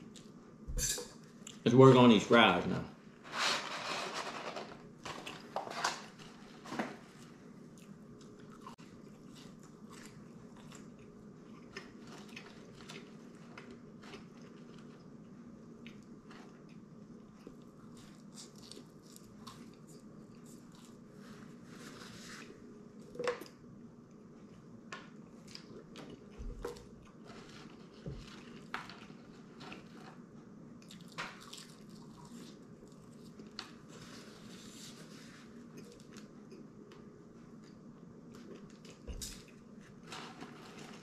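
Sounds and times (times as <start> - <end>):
person chewing french fries: 7.2 - 21.2, 24.2 - 30.2, 30.8 - 33.8.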